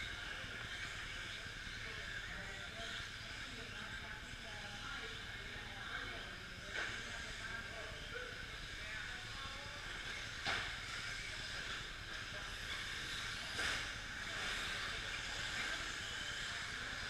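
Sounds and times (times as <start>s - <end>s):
rc trucks racing on dirt: 10.8s - 17.0s.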